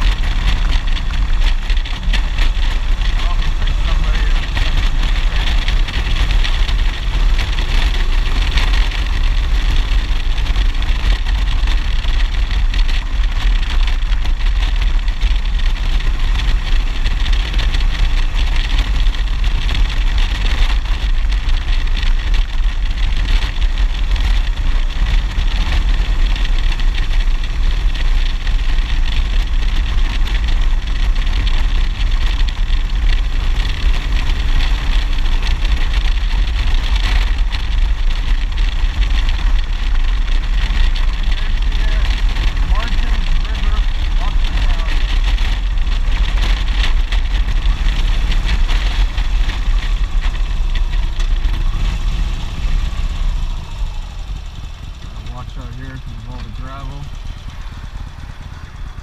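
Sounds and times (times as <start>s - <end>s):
motorcycle engine drone: 0.0s - 59.0s
wind rushing over microphone: 0.0s - 59.0s.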